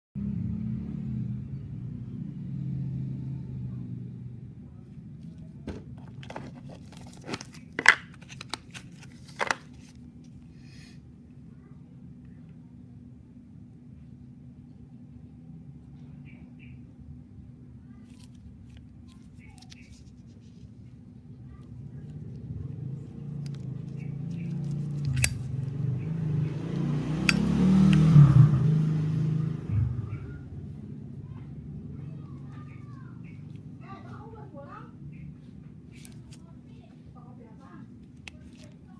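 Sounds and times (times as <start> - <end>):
cardboard box rustling and crinkling: 5.7 - 10.0
sharp clicks: 24.3 - 25.4
lighter lid clicking open: 25.0 - 25.4.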